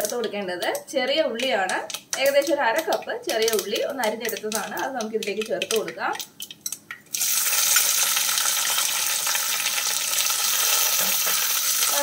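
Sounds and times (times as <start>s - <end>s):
shallots dropping into pot: 0.0s - 8.0s
loud oil sizzling: 6.4s - 12.0s.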